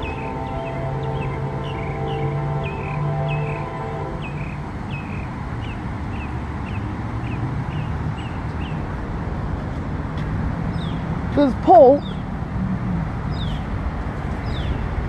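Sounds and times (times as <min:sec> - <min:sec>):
locomotive air horn chord: 0:00.0 - 0:05.0
train rumble: 0:00.0 - 0:15.0.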